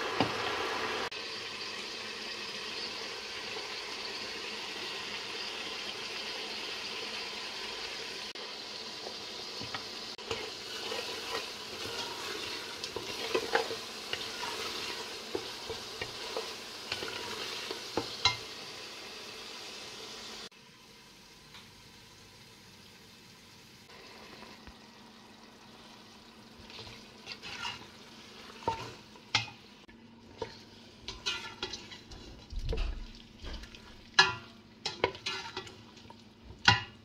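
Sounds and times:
sauce sizzling in hot oil: 0:00.0 - 0:37.0
spatula scraping a metal pot: 0:10.2 - 0:18.4, 0:26.7 - 0:29.6, 0:30.3 - 0:35.8.

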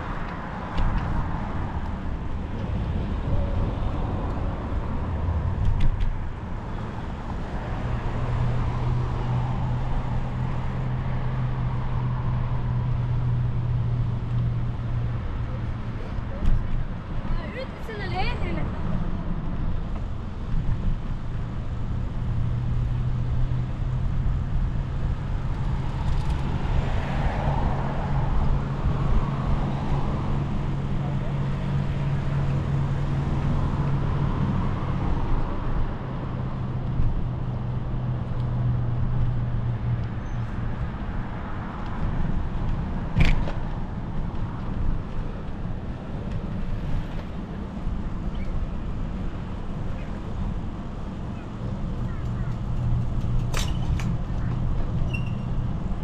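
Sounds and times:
road traffic: 0:00.0 - 0:56.0
bicycle riding on asphalt: 0:43.7 - 0:49.7.

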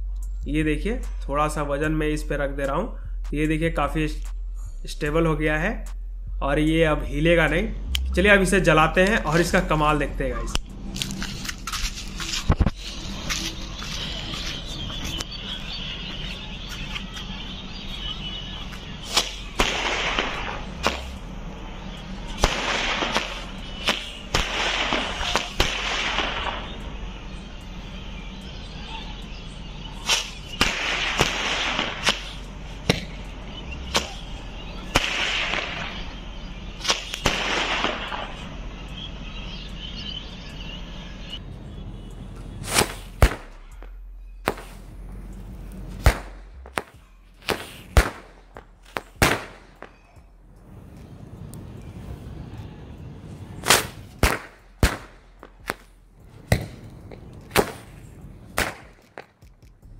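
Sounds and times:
firework shots whooshing: 0:18.9 - 0:21.3, 0:22.3 - 0:26.8, 0:30.0 - 0:38.4, 0:42.6 - 0:45.0, 0:45.9 - 0:50.0, 0:53.6 - 0:59.4
sharp firecracker cracks: 0:19.1 - 0:21.2, 0:22.4 - 0:26.8, 0:30.0 - 0:33.2, 0:33.9 - 0:34.3, 0:34.9 - 0:36.1, 0:36.8 - 0:38.4, 0:42.6 - 0:44.9, 0:46.0 - 0:50.1, 0:53.6 - 0:59.8
steady fuse hiss: 0:44.5 - 0:49.4.

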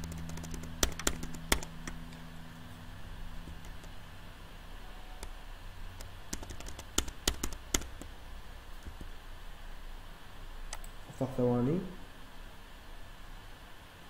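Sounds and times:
keyboard and mouse clicks: 0:00.0 - 0:02.2, 0:03.5 - 0:04.0, 0:06.0 - 0:08.1, 0:10.7 - 0:11.0
low steady hum: 0:00.0 - 0:14.0.

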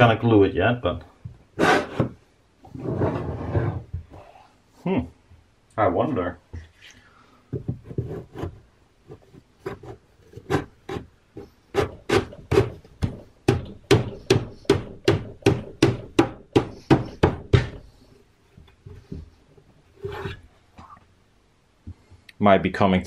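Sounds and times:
sharp wooden knocks: 0:11.7 - 0:17.9.

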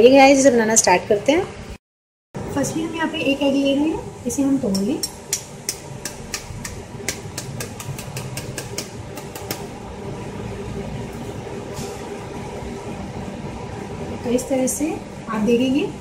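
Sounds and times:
steady background hum: 0:02.4 - 0:16.0
metal spoon tapping eggshell: 0:04.7 - 0:09.6.

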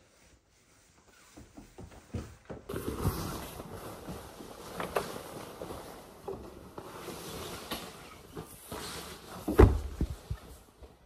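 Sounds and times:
nylon jacket rustling: 0:02.7 - 0:10.9.

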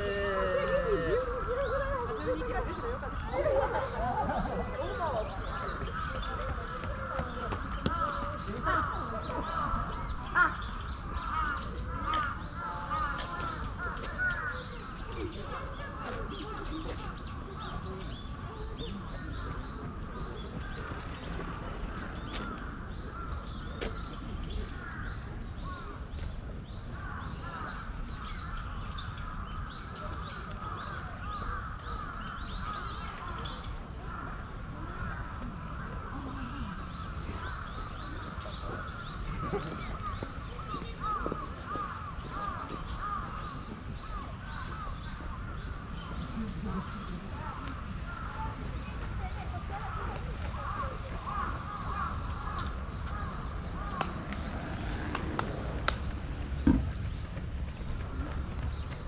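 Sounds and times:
birds calling: 0:00.0 - 0:59.0.

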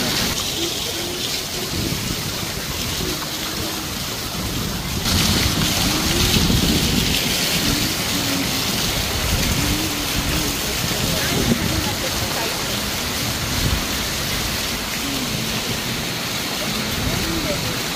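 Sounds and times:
falling water splashing: 0:00.0 - 0:17.9
faint voices: 0:00.3 - 0:04.4, 0:05.4 - 0:13.4, 0:14.7 - 0:17.9.

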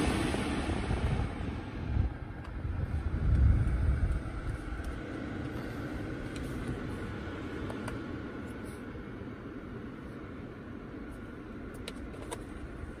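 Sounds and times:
microphone handling rumble: 0:01.9 - 0:05.0.

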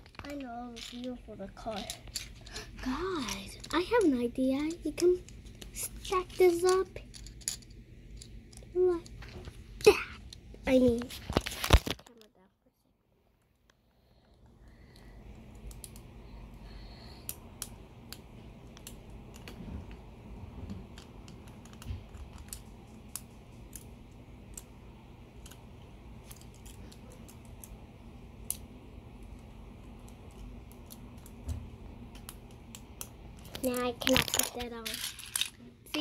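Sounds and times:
plastic bricks clicking together: 0:32.2 - 0:35.6.

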